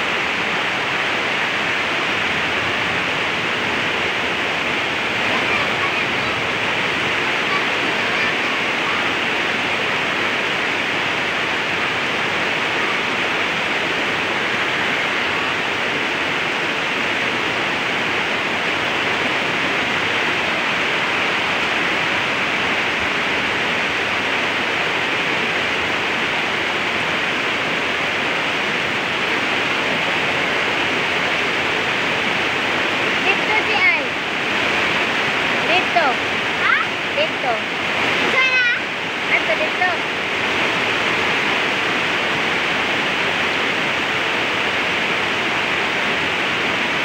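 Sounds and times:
water rushing over rocks: 0.0 - 47.0.

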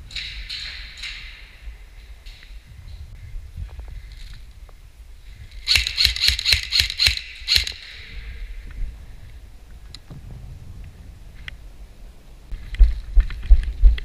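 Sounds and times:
airsoft rifle shots: 5.6 - 8.0.

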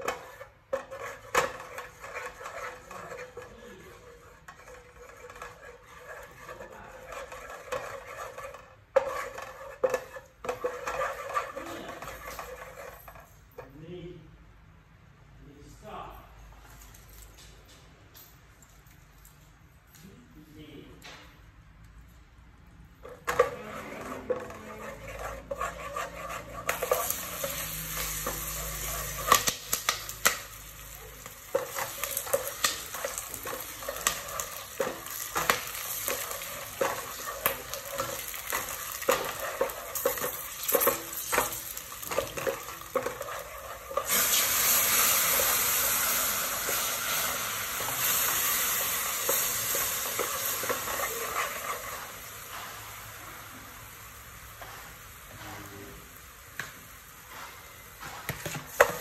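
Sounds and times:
mixture sizzling in pot: 0.0 - 13.6, 23.0 - 59.0
wooden spatula scraping metal pot: 0.0 - 13.7, 23.0 - 52.8, 58.0 - 59.0.

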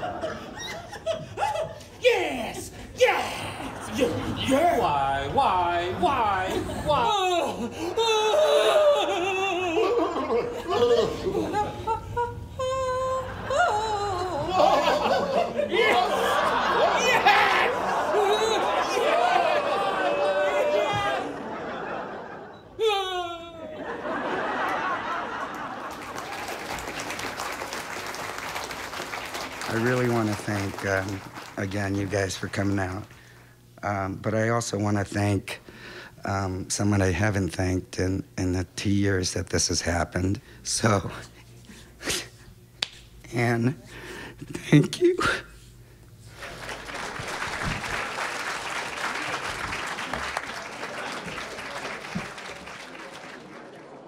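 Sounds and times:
audience laughing: 0.0 - 2.0, 3.2 - 22.8, 23.4 - 28.2, 46.3 - 54.0
audience clapping: 24.4 - 33.2, 46.3 - 54.0.

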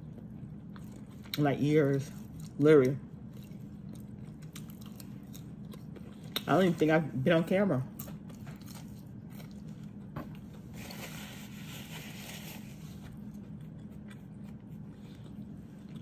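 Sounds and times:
chewing: 0.0 - 6.7, 12.8 - 16.0
steady low hum: 0.0 - 16.0.

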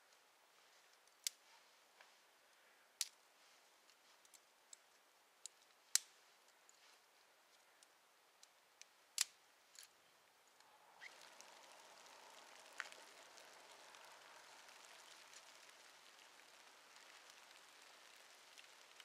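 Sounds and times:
kindling crackling and hissing: 0.5 - 19.0
small pops of fire: 7.8 - 9.9, 10.5 - 19.0.

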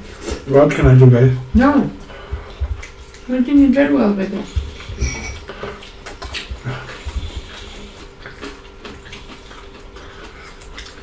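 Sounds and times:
soft low thumps: 0.8 - 2.8
people chewing and lip smacking: 2.0 - 11.0.

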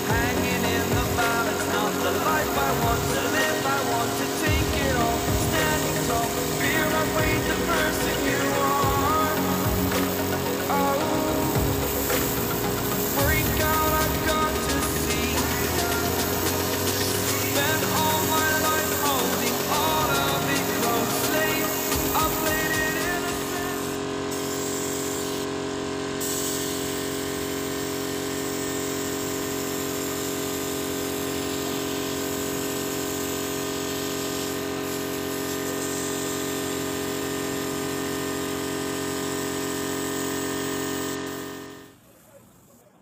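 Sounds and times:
compressor humming: 0.0 - 29.8
airbrush air hissing: 0.0 - 41.9.

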